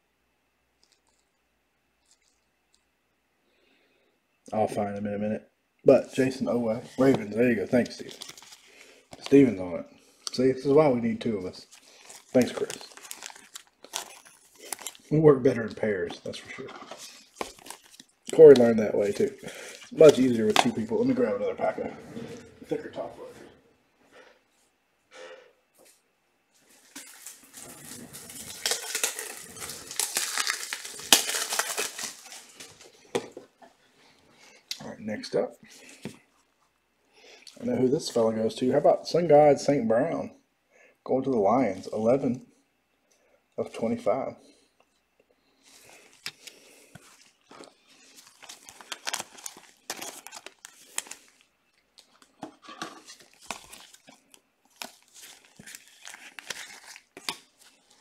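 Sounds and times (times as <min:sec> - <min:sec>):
plastic packaging crinkling: 0:06.9 - 0:21.4, 0:26.6 - 0:33.5, 0:45.6 - 0:58.0.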